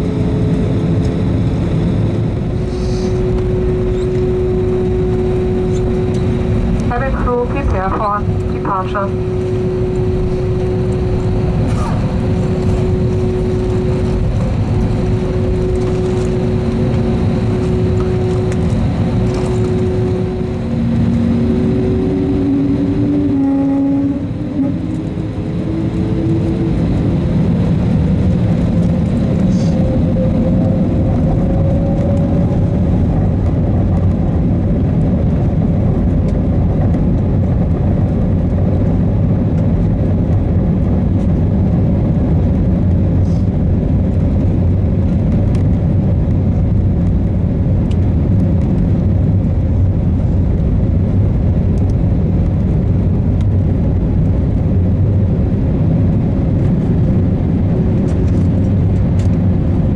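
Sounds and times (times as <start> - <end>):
jet engines humming: 0.0 - 59.9
jet engines spooling up whine: 0.0 - 59.9
tone: 2.2 - 26.7.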